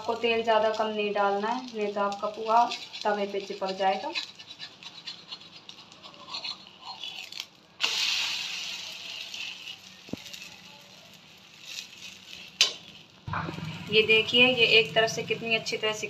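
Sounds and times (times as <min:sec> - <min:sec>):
hot oil sizzling: 0:00.0 - 0:16.0
metal spatula scraping: 0:01.8 - 0:13.1.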